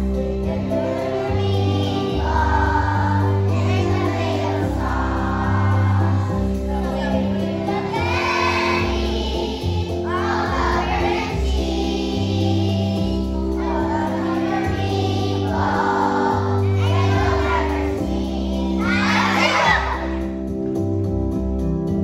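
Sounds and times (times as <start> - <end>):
children's choir singing: 0.0 - 20.4
instrumental accompaniment: 0.0 - 22.0.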